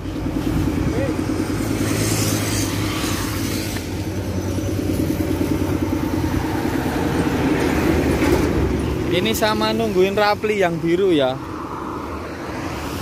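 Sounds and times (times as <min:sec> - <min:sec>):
vehicle engine running at low revs: 0:00.0 - 0:09.1
vehicle passing by: 0:00.0 - 0:13.0.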